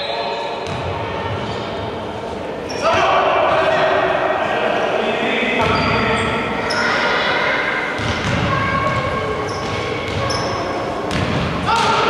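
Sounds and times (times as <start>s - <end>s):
players' voices: 0.0s - 12.0s
shoe squeaks: 2.6s - 3.0s, 5.6s - 10.9s
basketball bouncing on wooden court: 8.0s - 10.4s, 11.1s - 11.9s.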